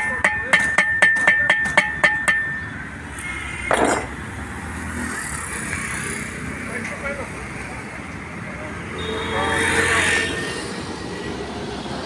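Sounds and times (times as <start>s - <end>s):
hammer striking steel: 0.0s - 2.7s.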